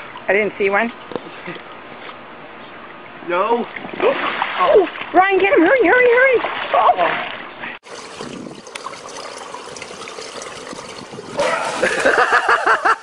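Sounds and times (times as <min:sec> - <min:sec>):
pool water splashing: 0:02.8 - 0:13.0
person laughing: 0:11.4 - 0:13.0.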